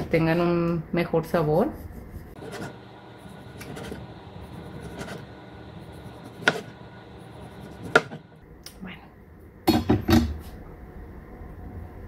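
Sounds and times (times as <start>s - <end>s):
knife sawing through tomato: 1.7s - 8.2s
knife tapping cutting board: 6.3s - 6.7s, 7.7s - 8.2s.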